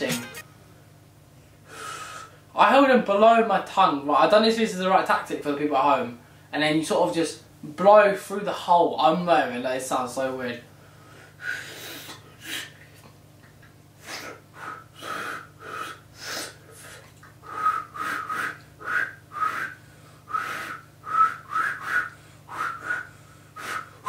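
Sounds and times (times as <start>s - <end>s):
person attempting finger whistle: 17.4s - 24.0s.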